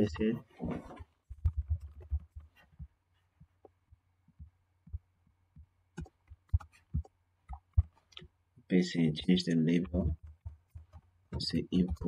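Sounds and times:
keyboard key presses: 5.9s - 8.3s.

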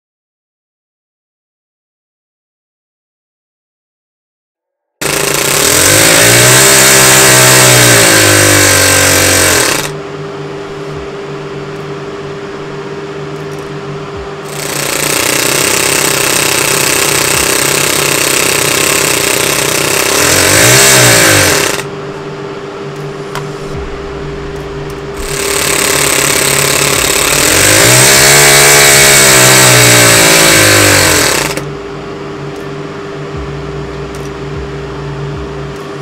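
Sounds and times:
model engine running fast: 5.0s - 10.0s, 14.5s - 21.9s, 25.2s - 31.7s.

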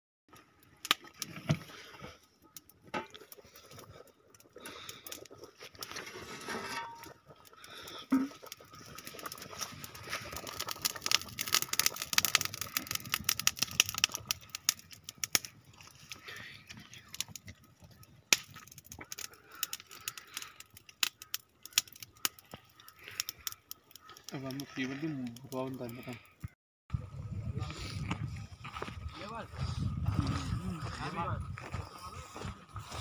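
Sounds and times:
pot being stirred: 2.8s - 20.2s.

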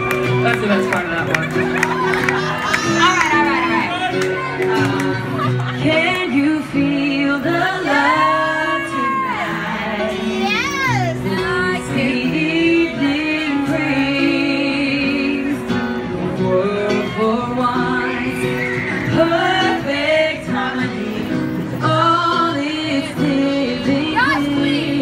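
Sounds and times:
woman singing into microphone: 5.7s - 25.0s.

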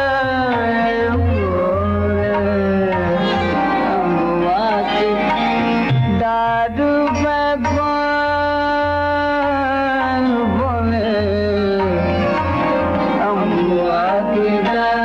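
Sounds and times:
tabla rhythm: 0.0s - 15.0s.

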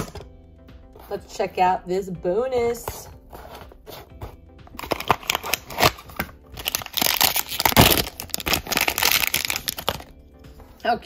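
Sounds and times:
plastic wrapper crinkling: 4.8s - 10.1s.

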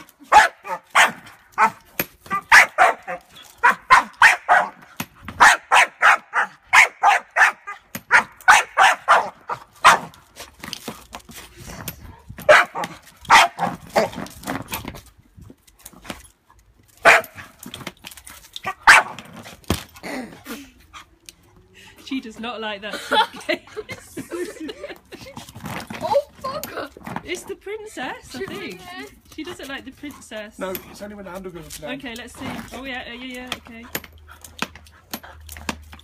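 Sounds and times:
dog barking: 0.3s - 4.8s, 5.4s - 10.1s, 12.5s - 14.1s, 17.0s - 17.4s, 18.8s - 19.2s.

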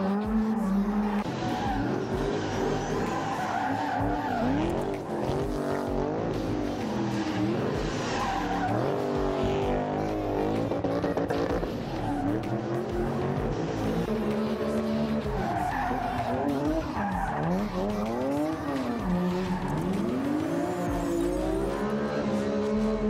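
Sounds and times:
car engine revving: 0.0s - 23.0s
tyres screeching: 0.5s - 5.8s, 6.9s - 10.5s.

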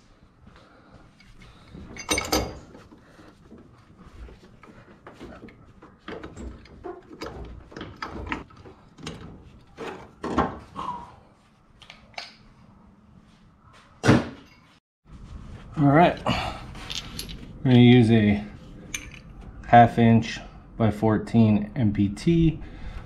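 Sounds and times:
locking pliers clanking on metal: 1.9s - 2.7s.

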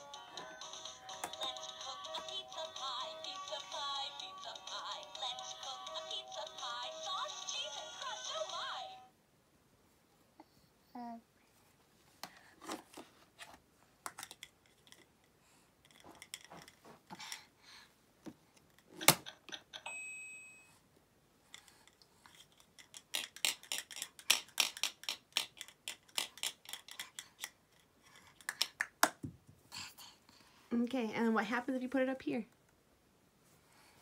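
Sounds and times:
plastic toys clicking and tapping: 14.0s - 15.2s, 15.8s - 17.5s, 18.6s - 19.9s, 21.5s - 29.3s.

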